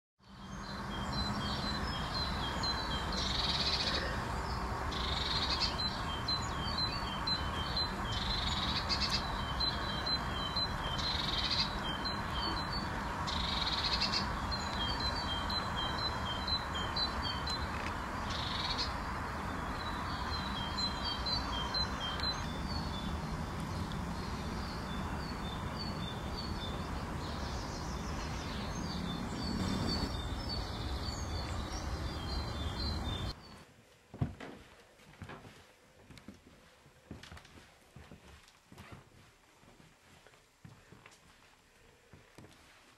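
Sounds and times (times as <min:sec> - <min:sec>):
small birds chirping: 0:00.2 - 0:33.7
outdoor background hiss: 0:00.2 - 0:42.9.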